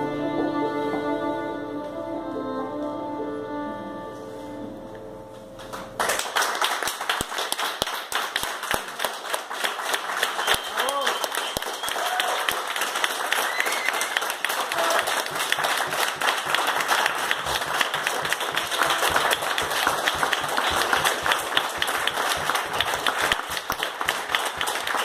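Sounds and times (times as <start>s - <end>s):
audience applauding: 5.6s - 25.0s.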